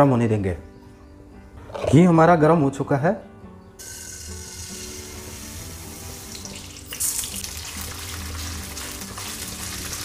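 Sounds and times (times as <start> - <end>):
soft background music: 0.0 - 10.0
beans sizzling in hot oil: 3.8 - 10.0.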